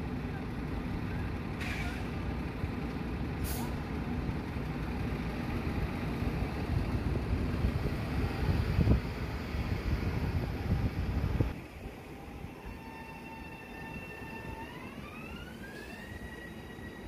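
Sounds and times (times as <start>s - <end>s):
heavy vehicle rumble: 0.0s - 17.0s
air brake hisses: 1.6s - 2.2s, 3.4s - 3.8s.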